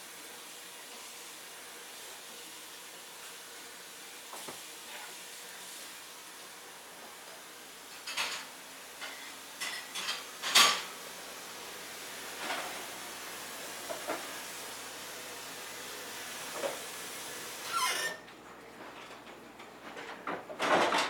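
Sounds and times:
steady hiss: 0.0s - 17.8s
dishes clinking in sink: 7.9s - 11.0s.

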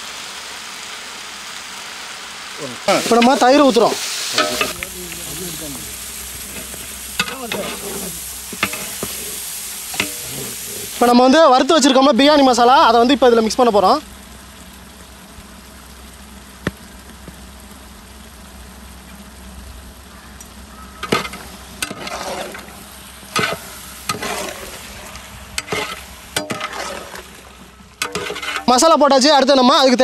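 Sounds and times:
food sizzling in a metal pot: 0.0s - 30.0s
ladle scraping a pot: 6.3s - 11.1s, 21.0s - 28.8s.

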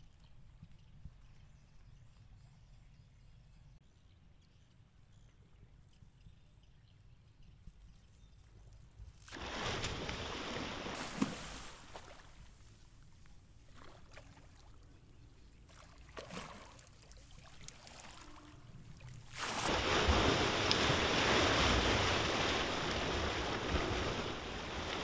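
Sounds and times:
fish splashing in water: 9.3s - 12.8s, 15.7s - 25.0s
fish thrashing water: 9.4s - 12.5s, 15.7s - 25.0s.

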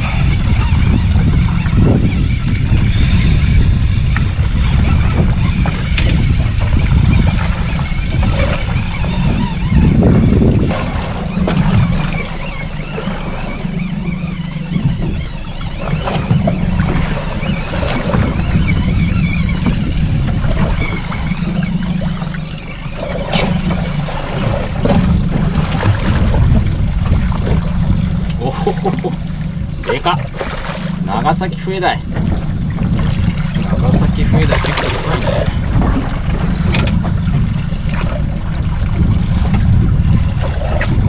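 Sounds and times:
waves slapping against hull: 0.0s - 41.0s
wind buffeting microphone: 0.0s - 41.0s.

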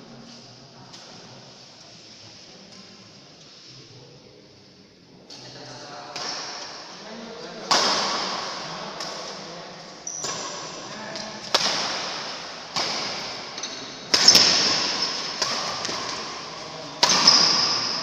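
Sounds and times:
badminton racket hitting shuttlecock: 10.2s - 18.0s.

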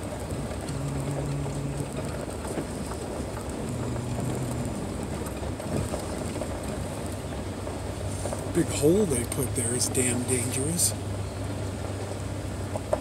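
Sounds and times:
tyre rumble: 0.0s - 7.0s
car engine hum: 0.0s - 13.0s
gravel crackling under tyres: 0.0s - 13.0s.

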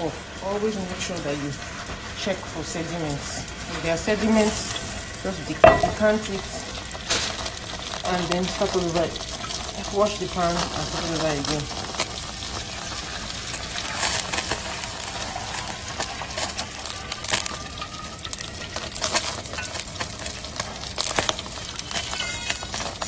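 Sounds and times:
metal utensils clinking on pan: 5.5s - 9.1s, 17.8s - 23.0s.

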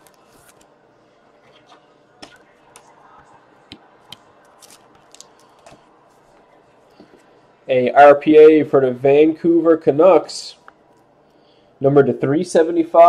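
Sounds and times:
trading cards clicking and rustling: 3.7s - 5.9s.

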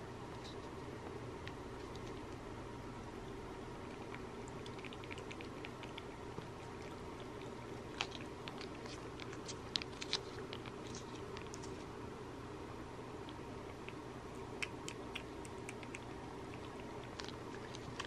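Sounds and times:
cats lapping wet food: 1.8s - 2.4s, 3.8s - 12.0s, 13.2s - 18.0s.

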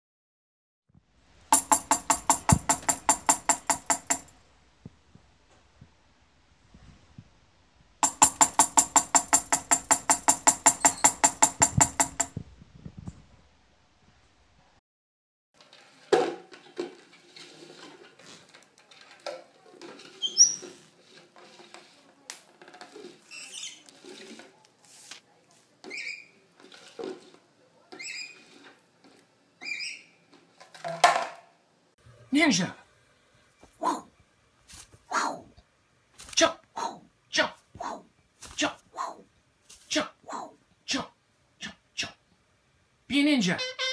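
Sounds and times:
bird pecking tambourine: 1.5s - 4.3s, 8.0s - 12.3s
plastic bowl scraping on wooden floor: 15.6s - 24.6s, 26.6s - 27.4s, 28.1s - 29.2s.

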